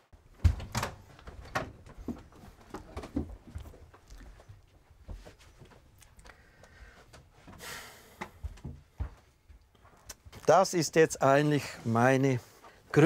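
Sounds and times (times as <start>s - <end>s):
footsteps on wood: 0.3s - 10.5s.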